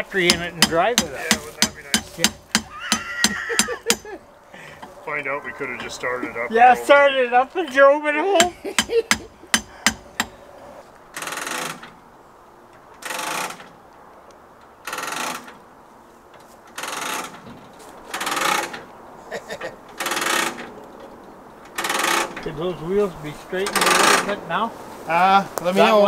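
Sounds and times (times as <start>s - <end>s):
sharp knocks: 0.2s - 4.2s, 8.4s - 10.4s
ratchet winch clicking: 11.2s - 11.9s, 13.0s - 13.8s, 14.8s - 15.6s, 16.7s - 17.4s, 18.1s - 18.9s, 20.0s - 20.7s, 21.7s - 22.4s, 23.7s - 24.3s.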